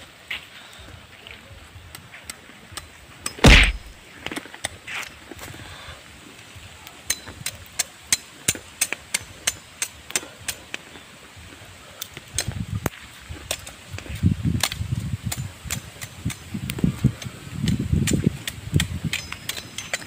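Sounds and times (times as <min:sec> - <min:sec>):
machete clicking on bamboo: 0:02.0 - 0:04.8, 0:07.1 - 0:10.8, 0:12.0 - 0:20.0
low thumps: 0:03.4 - 0:04.0.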